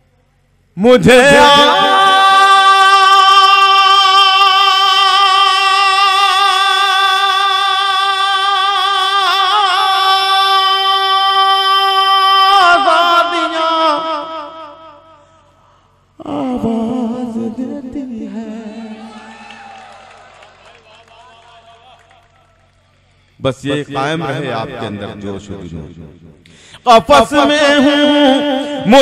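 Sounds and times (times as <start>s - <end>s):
man singing: 0.8s - 15.2s, 16.2s - 19.3s, 26.8s - 29.0s.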